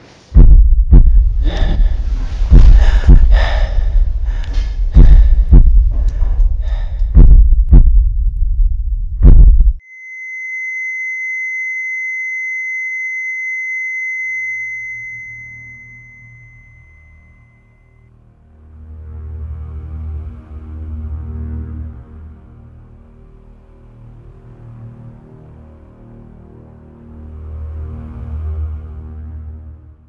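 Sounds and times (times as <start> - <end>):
deep rumble: 0.4 - 9.8
heavy heartbeat: 0.4 - 9.8
heart monitor flatline tone: 9.2 - 17.7.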